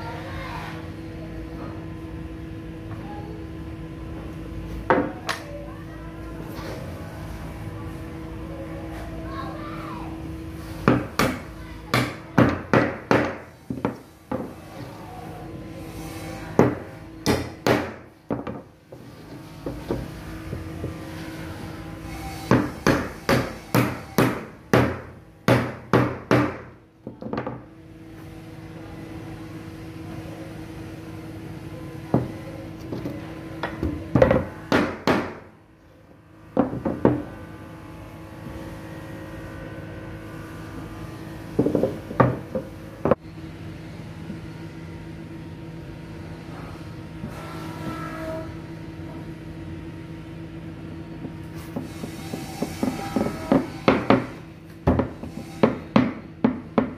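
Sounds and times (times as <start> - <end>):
hammer knocking on wood: 10.9 - 14.5, 22.5 - 27.6, 33.8 - 35.4, 54.9 - 56.9.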